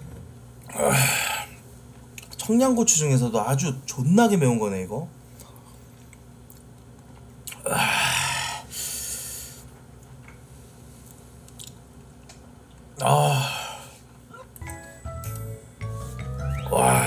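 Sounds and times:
man's hissing breaths: 7.9 - 9.7.

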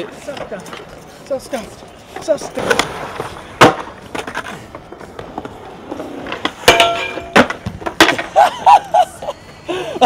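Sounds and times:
skateboard hitting concrete: 2.2 - 8.5.

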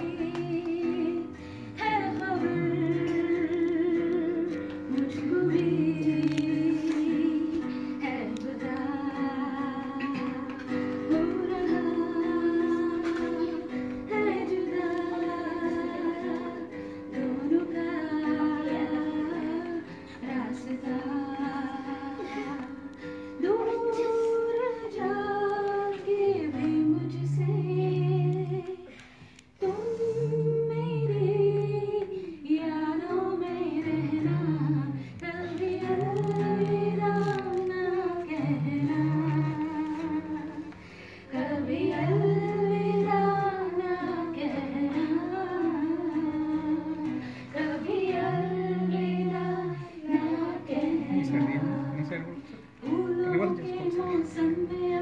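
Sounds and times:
acoustic guitar: 0.0 - 55.0
woman singing slow melody: 0.0 - 55.0.

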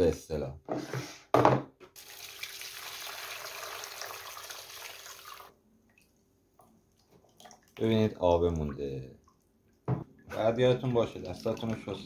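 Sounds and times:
liquid pouring and splashing: 2.0 - 6.1, 7.0 - 7.9, 10.3 - 12.0.

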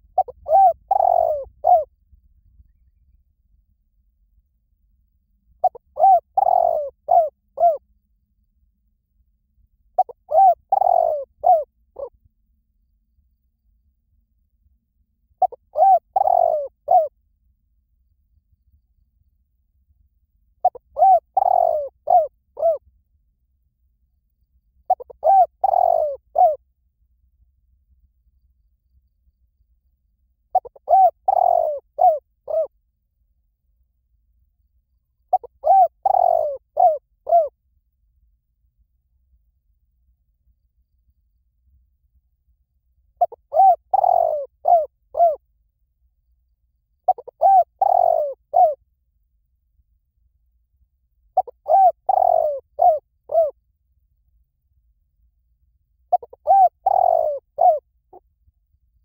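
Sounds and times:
dove cooing: 0.0 - 1.9, 5.6 - 7.8, 10.0 - 12.1, 15.4 - 17.1, 20.6 - 22.8, 24.9 - 26.6, 30.5 - 32.7, 35.3 - 37.6, 43.2 - 45.4, 47.1 - 48.8, 51.4 - 53.6, 56.1 - 58.2.

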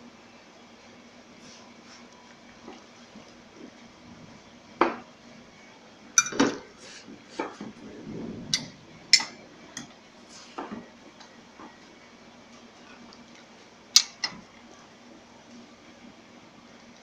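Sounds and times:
utensils clinking against dishes: 6.2 - 6.7.

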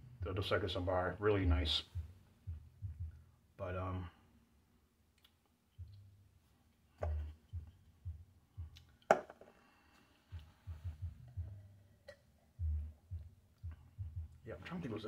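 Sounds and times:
soft low thumps: 0.0 - 4.1, 5.8 - 6.4, 7.0 - 9.3, 10.3 - 15.0
glass knocking on table: 7.0 - 7.3, 9.1 - 9.4.

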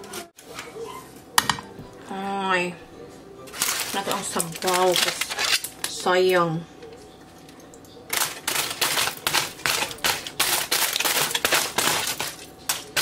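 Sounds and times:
aluminium foil crinkling: 3.4 - 7.0, 8.0 - 13.0.

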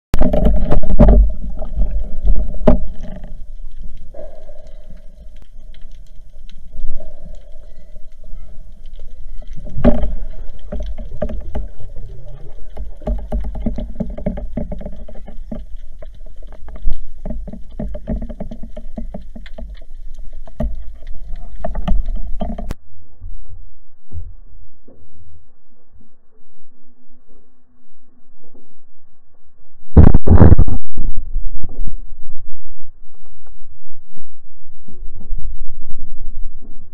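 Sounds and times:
muffled underwater rumble: 0.1 - 36.9
quiet low hum: 0.2 - 36.9
small clicks and knocks: 8.8 - 22.8.

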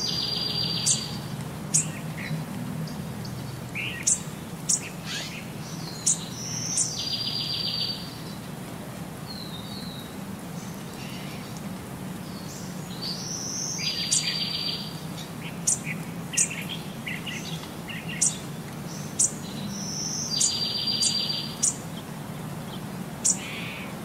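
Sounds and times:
songbird chirps and calls: 0.0 - 8.6, 9.2 - 24.0.

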